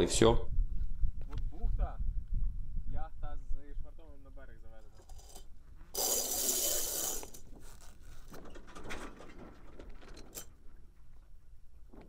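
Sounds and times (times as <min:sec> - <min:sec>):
clicks and rattles: 0:04.8 - 0:11.1
sail rustling: 0:04.8 - 0:12.0.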